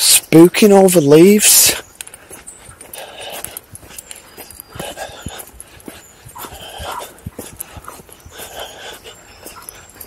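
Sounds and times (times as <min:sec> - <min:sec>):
dog panting: 0:02.1 - 0:10.0.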